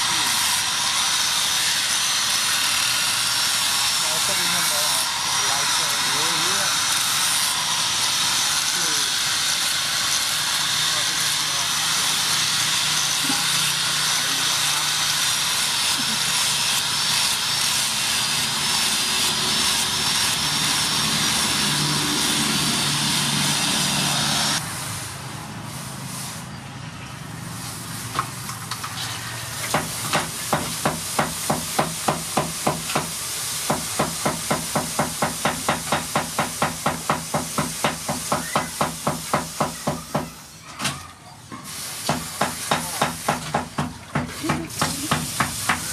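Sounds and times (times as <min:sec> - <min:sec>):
power sander whining on steel: 0:00.0 - 0:24.7.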